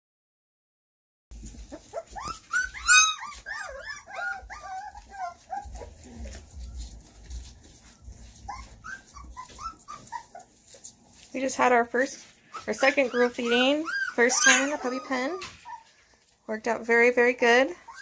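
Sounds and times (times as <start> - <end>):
puppies whimpering: 1.4 - 11.3, 12.2 - 16.3, 17.6 - 18.0.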